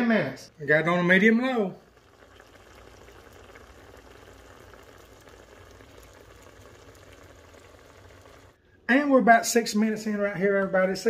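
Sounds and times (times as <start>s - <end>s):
sauce bubbling in a saucepan: 0.5s - 8.6s.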